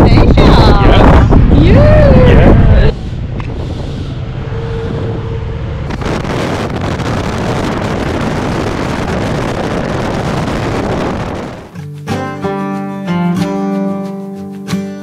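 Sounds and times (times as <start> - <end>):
wind noise on microphone: 0.0 - 11.7.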